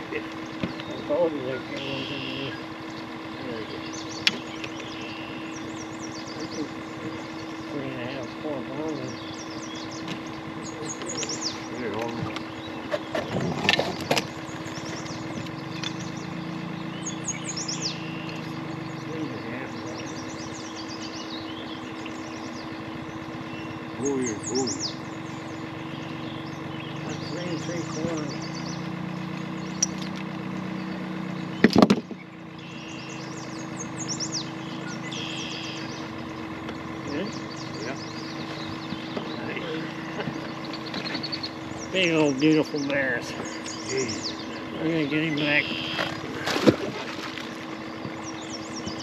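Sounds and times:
low motor hum: 0:00.0 - 0:49.0
songbirds chirping: 0:00.0 - 0:49.0
sharp knocks: 0:31.6 - 0:32.2.

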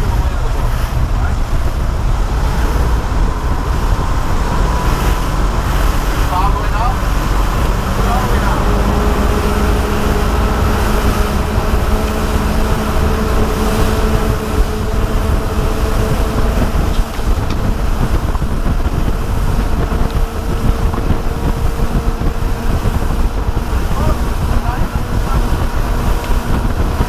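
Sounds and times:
boat engines droning: 0:00.0 - 0:27.0
wind buffeting microphone: 0:00.0 - 0:27.0.

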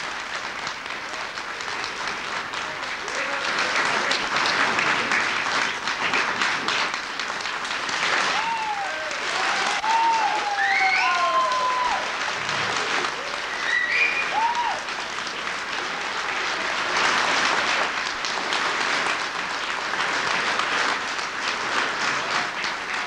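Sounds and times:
audience applauding: 0:00.0 - 0:23.0
shouted cheers: 0:08.2 - 0:15.0.

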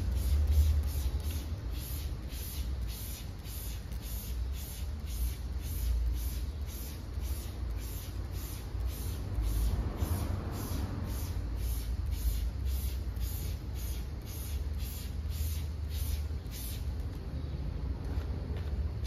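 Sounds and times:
spray bottle squirting: 0:00.0 - 0:17.1.

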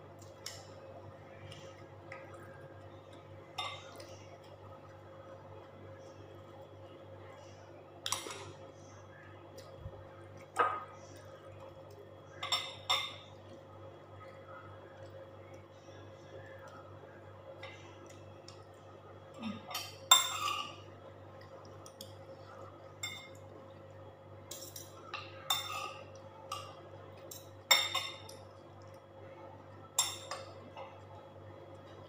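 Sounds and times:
cutlery and shells clinking on plates: 0:24.5 - 0:28.4.

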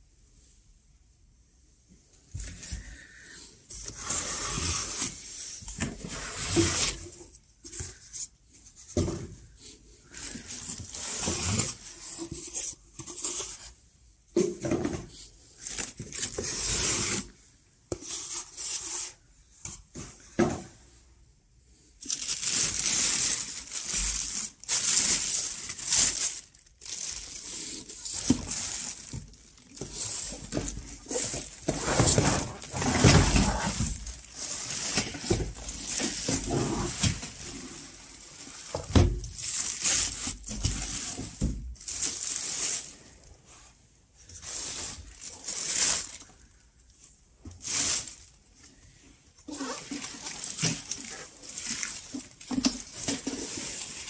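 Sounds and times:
plastic wrapping crinkling: 0:22.0 - 0:43.0, 0:44.4 - 0:46.4, 0:49.5 - 0:54.0
cardboard box scraping and bumping: 0:29.8 - 0:34.1.

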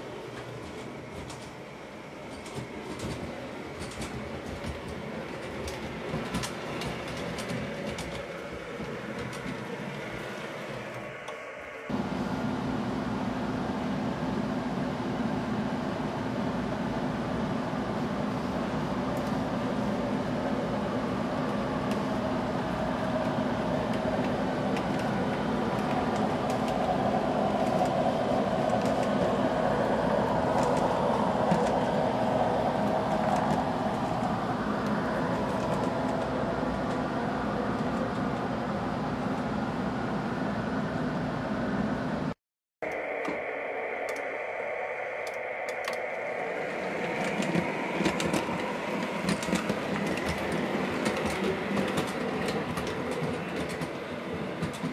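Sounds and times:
wheels on rail: 0:00.0 - 0:12.5, 0:17.9 - 0:42.0, 0:45.2 - 0:54.9
wheels clicking over rail joints: 0:02.3 - 0:10.2, 0:47.3 - 0:54.9.

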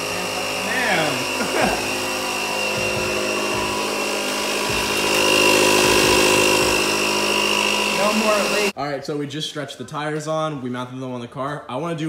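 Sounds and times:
air compressor running: 0:00.0 - 0:08.8.

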